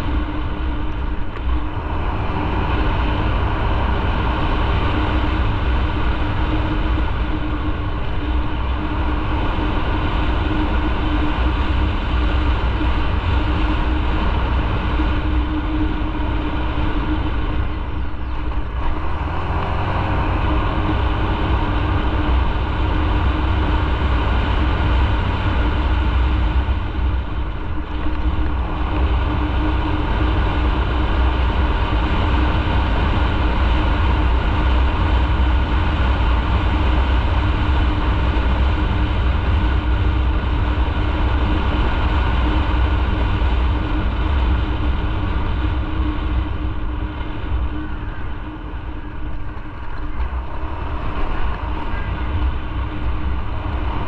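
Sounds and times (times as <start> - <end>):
motorcycle engine hum: 0.0 - 54.0
wind and road noise: 0.0 - 54.0.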